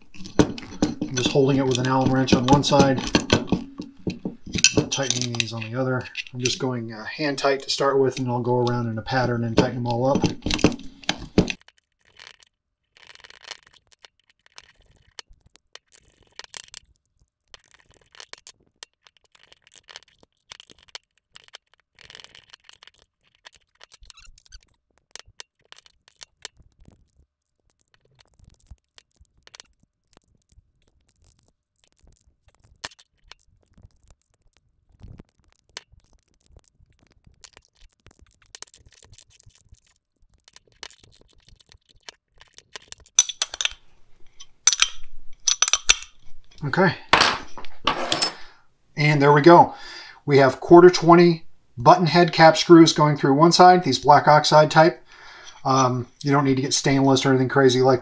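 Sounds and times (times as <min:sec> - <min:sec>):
wrench scraping: 0:00.0 - 0:11.6, 0:43.2 - 0:46.7, 0:47.3 - 0:48.5, 0:55.4 - 0:56.0
metal clinks: 0:43.2 - 0:43.8, 0:44.4 - 0:46.2
metallic clicks of hand tools: 0:43.2 - 0:46.2.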